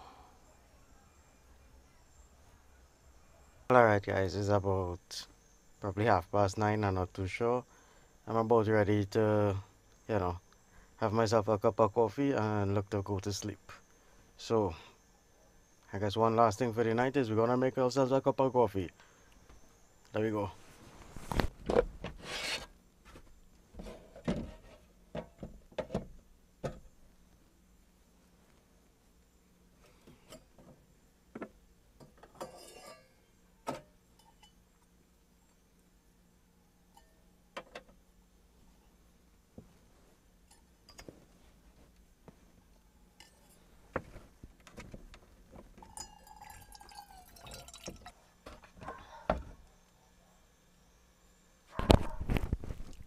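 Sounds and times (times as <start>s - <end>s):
metal and wood knocks and clatters: 23.8s - 26.8s
water pouring into metal mug: 45.9s - 48.1s.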